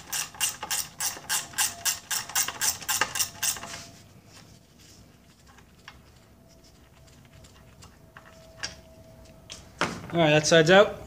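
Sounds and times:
ratchet wrench clicking: 0:00.0 - 0:03.6.

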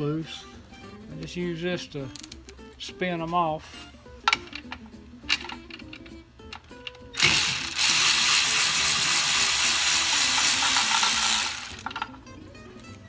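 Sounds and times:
electric ratchet running: 0:07.2 - 0:12.1.

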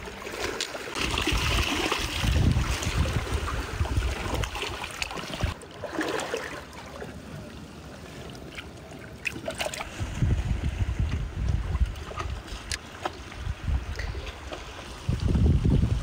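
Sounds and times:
wind rumbling on microphone: 0:01.0 - 0:05.6, 0:09.8 - 0:16.0.

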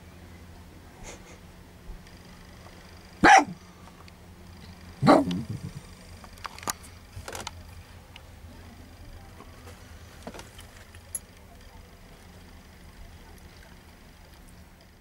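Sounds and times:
small dog barking: 0:03.2 - 0:03.6, 0:05.0 - 0:05.4.

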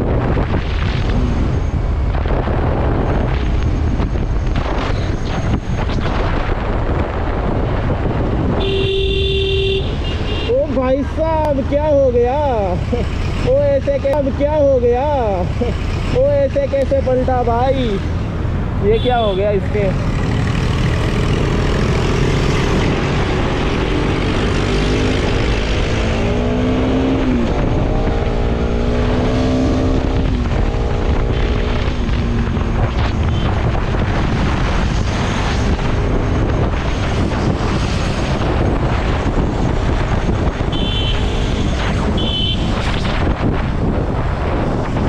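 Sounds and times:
wind rumble on microphone: 0:00.0 - 0:45.0
motorcycle engine: 0:17.8 - 0:43.8.

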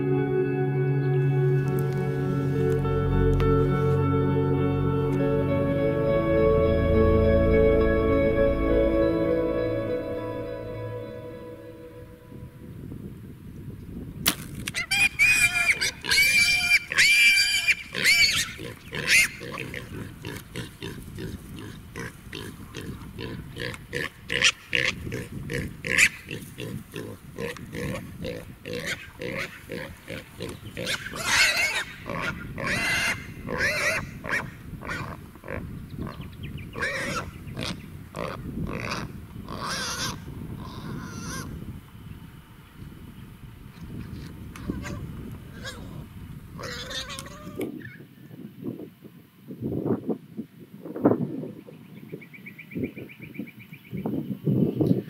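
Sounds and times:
pigs squealing: 0:14.8 - 0:36.2, 0:36.8 - 0:41.6, 0:44.6 - 0:48.0
pigs grunting: 0:15.2 - 0:41.5, 0:46.6 - 0:47.6.

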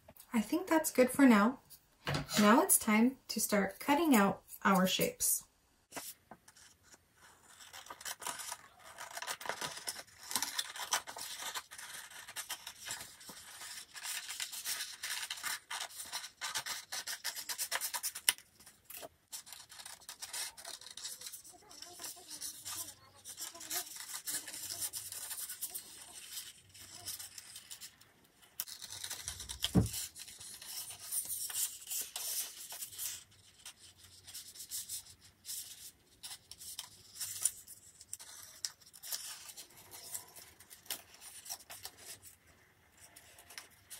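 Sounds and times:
paper rustling: 0:05.9 - 0:43.9
scissors snipping paper: 0:07.4 - 0:42.2.

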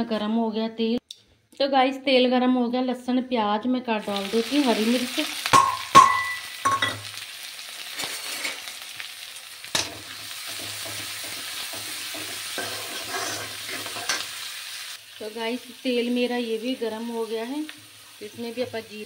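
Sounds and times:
food sizzling in hot oil: 0:04.0 - 0:19.0
metal utensils clinking on pan: 0:05.5 - 0:07.1, 0:09.7 - 0:14.3
metal ladle stirring and scraping: 0:10.5 - 0:14.3.

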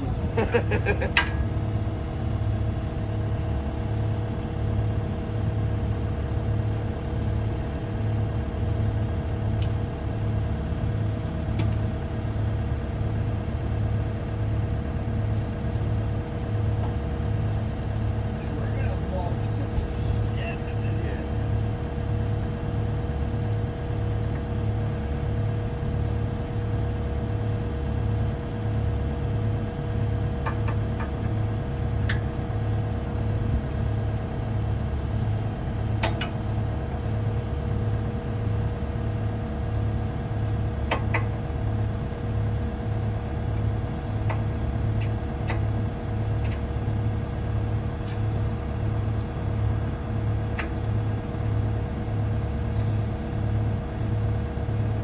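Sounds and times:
track loader engine droning: 0:00.0 - 0:55.0.

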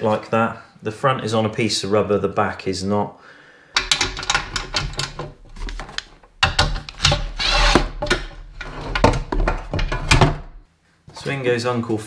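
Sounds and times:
tools clicking and knocking: 0:03.8 - 0:10.6.

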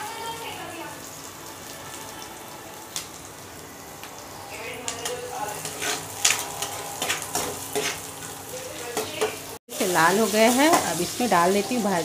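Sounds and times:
food sizzling in hot oil: 0:00.0 - 0:12.0
spatula scraping pan: 0:05.0 - 0:08.4.

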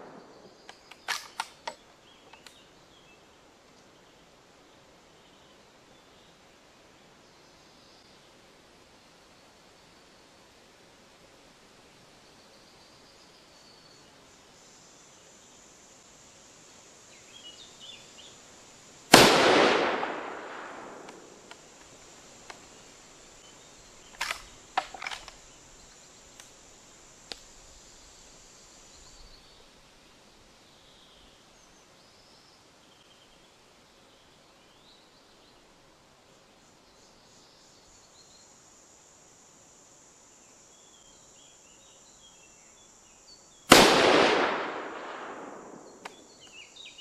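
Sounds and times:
sharp clicks: 0:00.6 - 0:02.6, 0:24.1 - 0:25.4
rifle shot with echo: 0:19.1 - 0:21.4, 0:43.7 - 0:46.3.

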